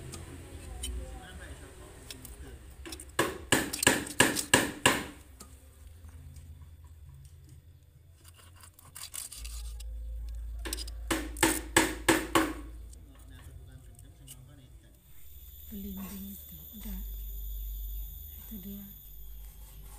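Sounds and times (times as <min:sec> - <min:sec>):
knife scraping fish scales: 0:08.2 - 0:09.9, 0:19.1 - 0:19.9.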